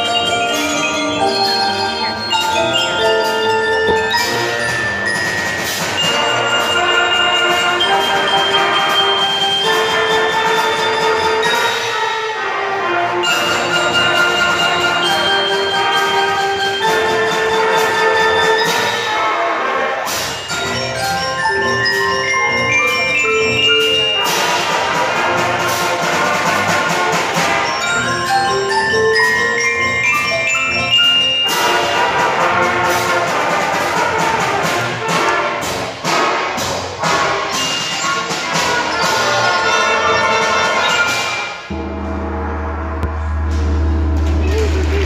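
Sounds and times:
xylophones and bells: 0.0s - 12.2s, 13.2s - 19.4s, 20.1s - 42.1s
concert band playing: 0.0s - 45.0s.

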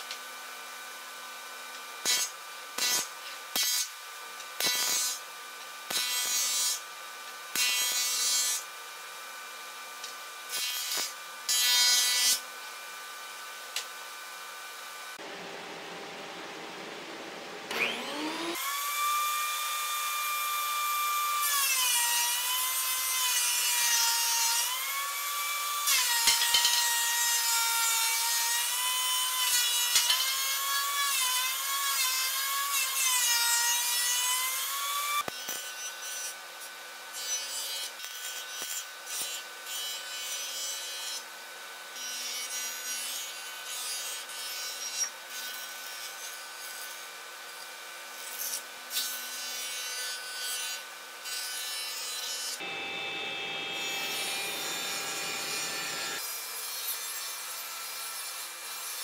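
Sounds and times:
thickness planer cutting: 7.6s - 8.6s, 10.5s - 12.4s, 17.6s - 36.4s, 48.2s - 59.0s
jointer cutting board: 15.2s - 32.6s, 52.5s - 56.3s.

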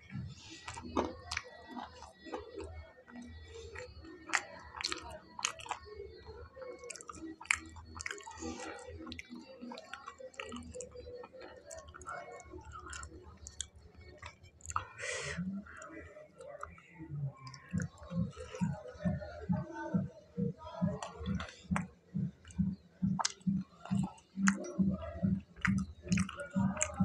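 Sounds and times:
person chewing crunchy food: 0.6s - 5.9s, 6.9s - 15.0s, 21.0s - 27.0s.

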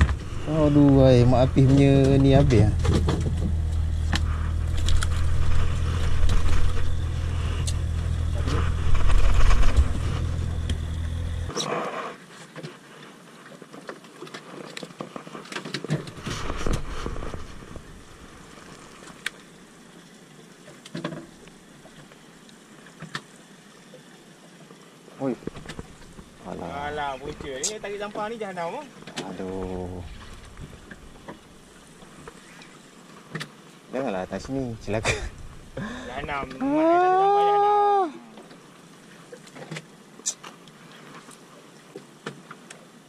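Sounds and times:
steady low rumble: 0.0s - 11.5s, 16.6s - 18.8s, 29.5s - 32.2s, 34.2s - 36.6s
scraping and clicking: 1.6s - 11.1s.

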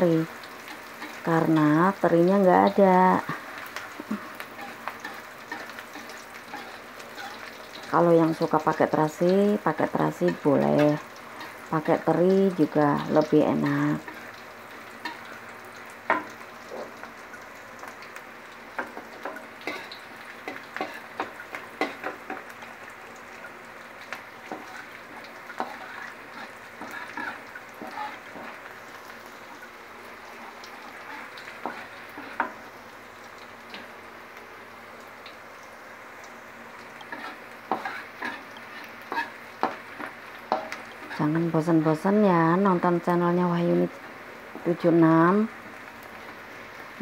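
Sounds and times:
shallots sizzling in hot oil: 0.0s - 47.0s
metal spatula scraping wok: 4.6s - 7.9s, 24.5s - 28.6s, 30.8s - 32.5s, 37.1s - 41.3s.

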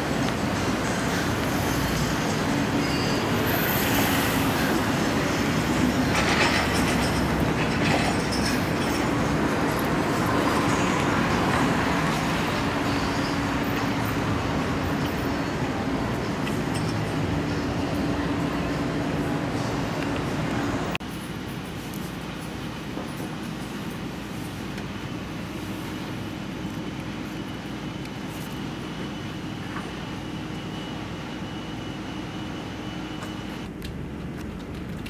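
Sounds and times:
vehicle rumble and rattle: 0.0s - 24.2s, 33.6s - 35.0s.

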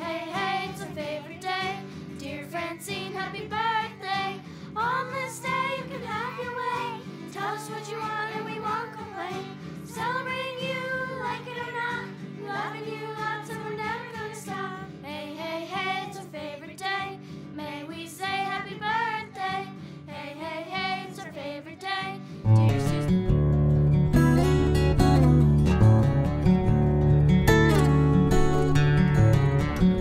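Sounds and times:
pop song with singing: 0.0s - 23.0s.

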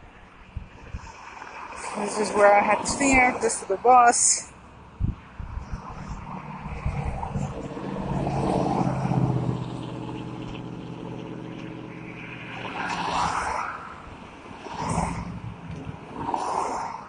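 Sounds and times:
road noise: 0.0s - 17.0s
vehicle engine passing: 4.5s - 17.0s.

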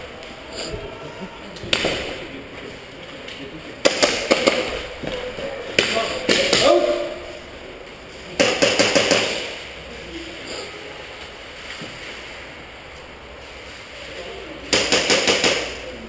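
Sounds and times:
airsoft guns firing bursts: 3.8s - 4.8s, 8.4s - 9.6s, 14.7s - 15.9s.

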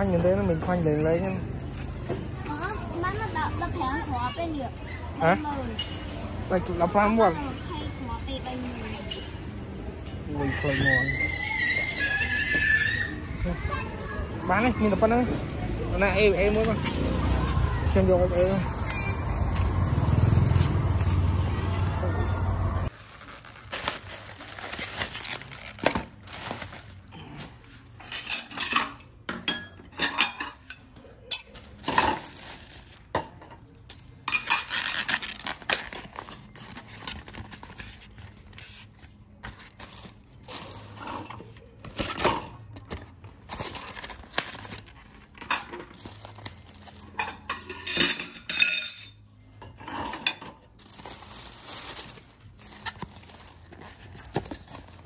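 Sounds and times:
dishes and cutlery clinking: 28.0s - 32.3s, 33.2s - 35.0s, 47.0s - 50.7s.

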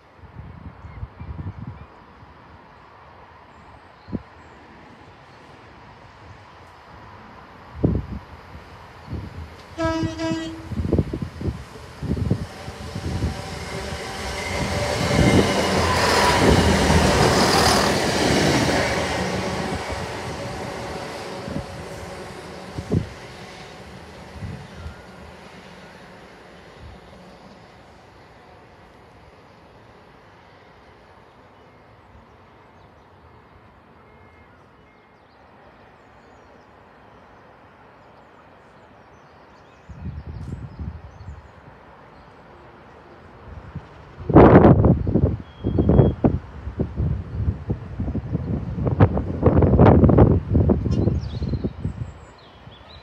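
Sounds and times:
train engines passing: 1.2s - 39.6s, 40.2s - 53.0s
train wheels on rails: 8.5s - 31.0s.

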